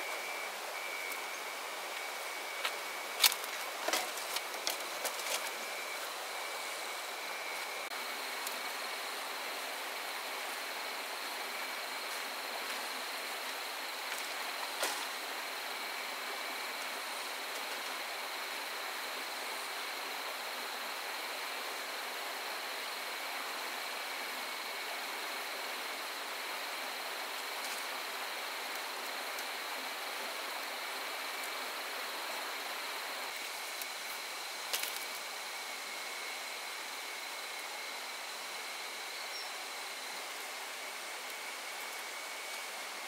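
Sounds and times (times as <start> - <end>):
constant hiss: 0.0 - 43.0
insect trilling: 39.1 - 40.4.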